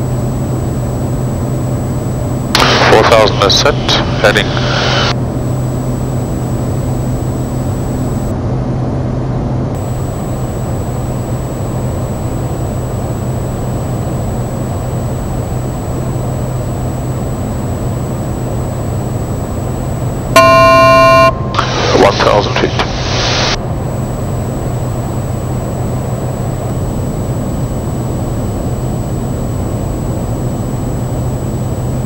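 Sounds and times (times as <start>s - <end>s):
loud electronic tone: 0.0s - 8.3s, 9.8s - 32.0s
turboprop engine droning: 0.0s - 8.4s, 9.7s - 32.0s.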